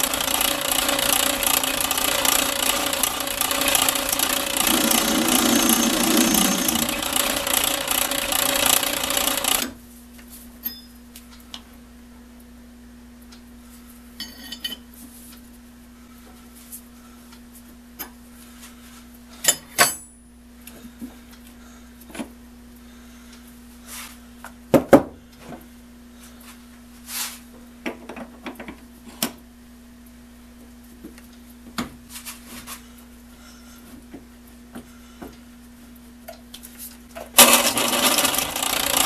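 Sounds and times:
steel tools clanking on metal: 0:14.2 - 0:14.8.

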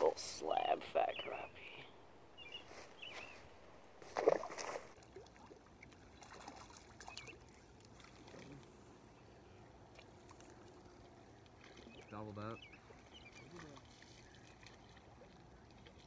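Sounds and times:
faint bird chirps: 0:00.6 - 0:03.5.

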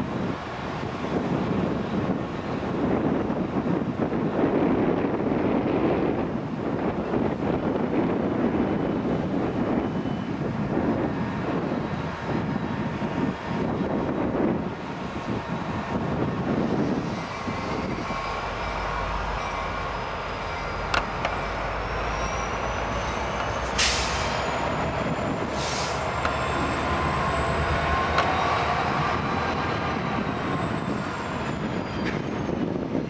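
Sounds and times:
diesel locomotive rumbling past: 0:00.0 - 0:33.0
short hisses: 0:25.6 - 0:26.0.

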